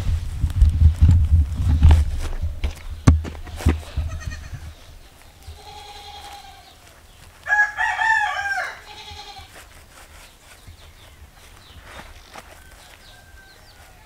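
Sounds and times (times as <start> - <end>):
knocks and rustles: 0.0 - 4.8
rooster crowing: 7.4 - 9.0, 12.5 - 14.0.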